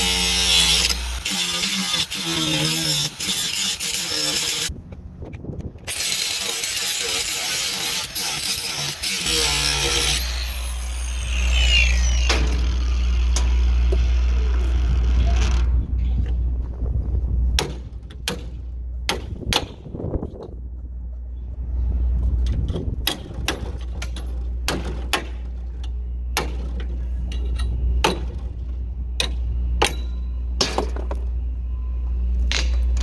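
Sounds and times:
angle grinder grinding steel: 0.0s - 4.7s, 5.9s - 15.7s.

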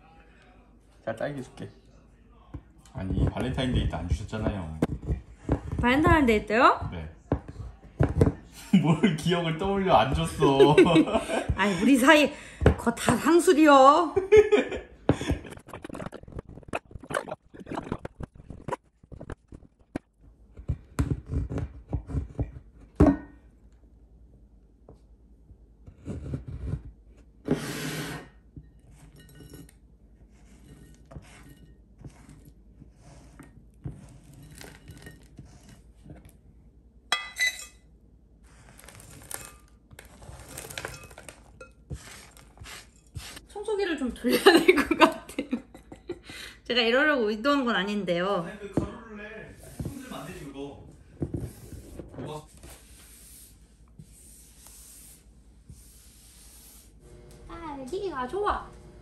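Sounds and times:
spatula scraping board: 25.9s - 29.5s, 30.3s - 35.9s, 49.6s - 50.5s, 51.2s - 57.0s.

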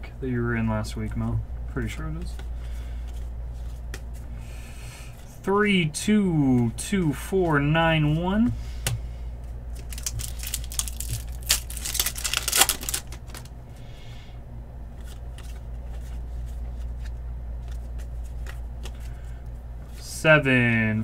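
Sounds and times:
steady low hum: 0.0s - 21.0s
trading cards snapping and rustling: 9.7s - 13.5s, 15.0s - 19.3s.

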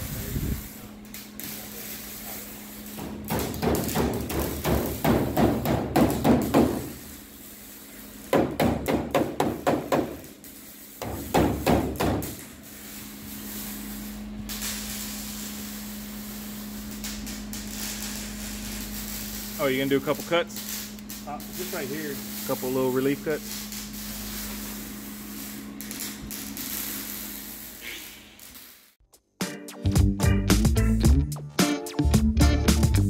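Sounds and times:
hammer striking sheet steel: 2.9s - 7.1s, 8.2s - 12.5s.

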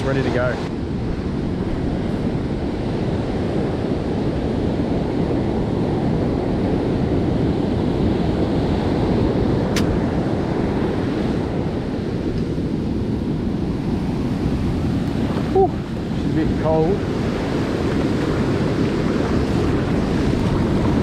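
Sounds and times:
heavy surf breaking: 0.0s - 21.0s
wind rumbling on microphone: 0.0s - 21.0s
sharp click: 9.7s - 10.0s.

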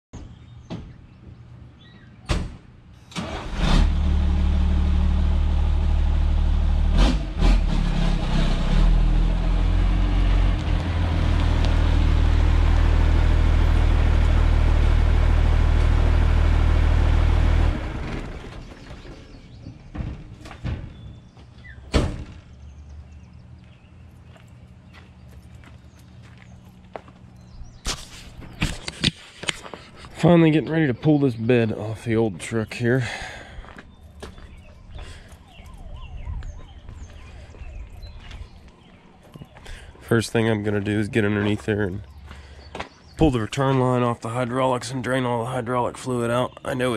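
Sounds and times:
truck engine running: 3.2s - 19.5s.

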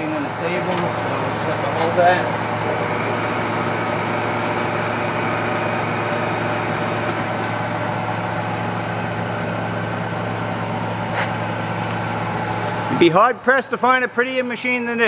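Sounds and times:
milling machine motor hum: 0.0s - 14.8s.

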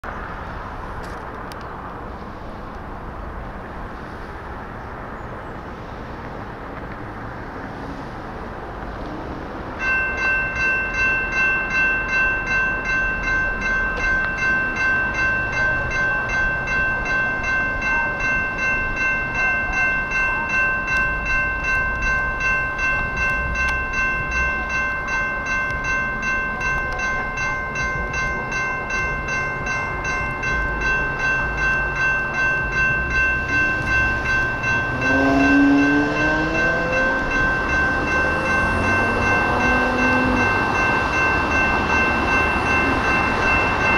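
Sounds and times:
train whine rising in pitch: 7.6s - 43.9s
crossing bell ringing: 9.1s - 43.9s.

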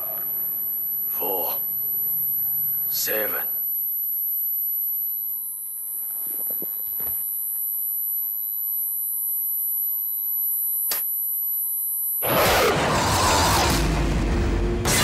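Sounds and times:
high-pitched whine: 0.0s - 10.3s
faint hum: 0.0s - 13.2s
soft rustling: 5.7s - 7.8s.

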